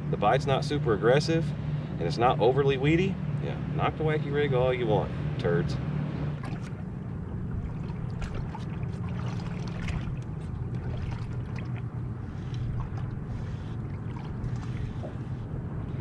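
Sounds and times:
water lapping against boat hull: 3.8s - 16.0s.

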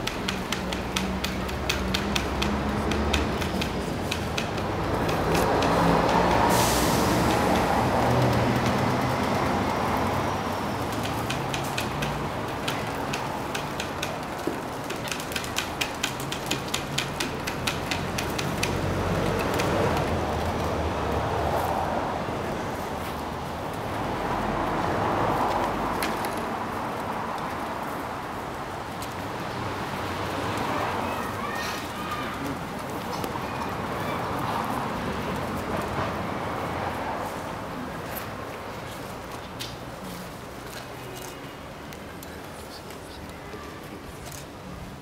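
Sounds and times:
passing traffic rumble: 0.0s - 45.0s.

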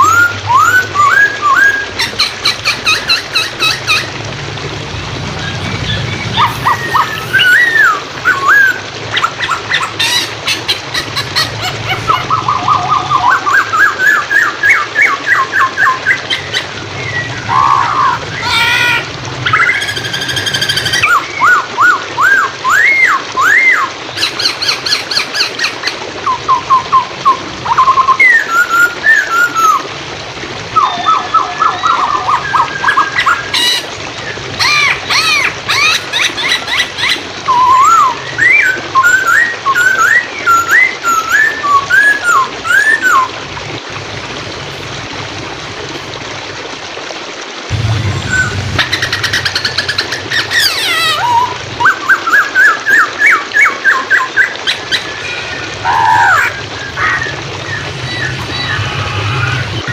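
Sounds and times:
bird singing whistled phrases: 0.0s - 2.1s, 5.4s - 8.8s, 37.5s - 43.3s, 48.3s - 49.4s
flowing water: 0.0s - 59.9s.

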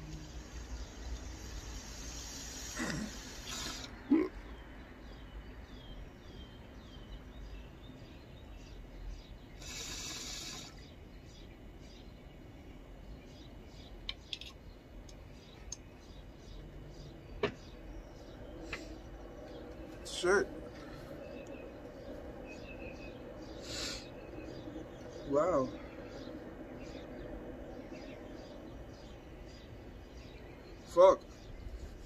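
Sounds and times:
small birds chirping: 0.0s - 32.0s
rush of air: 20.6s - 24.2s.

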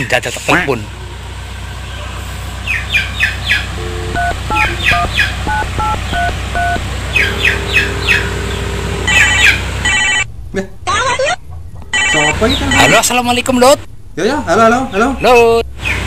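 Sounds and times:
birds chirping: 0.9s - 10.0s, 12.0s - 13.2s, 15.2s - 16.0s
phone keypad beeps: 3.8s - 6.8s, 9.1s - 10.2s
phone ringtone: 3.8s - 10.3s, 11.9s - 13.0s
ringback tone: 3.8s - 10.3s, 11.9s - 13.0s.

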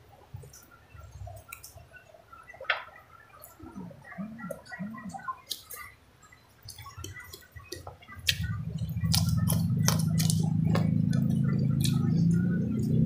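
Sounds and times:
chewing and smacking: 3.4s - 6.0s, 6.6s - 13.0s
loud low hum: 8.4s - 13.0s.

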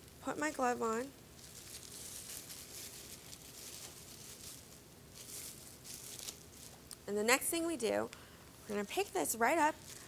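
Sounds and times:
plastic glove rustling: 0.0s - 7.0s, 9.0s - 10.0s.

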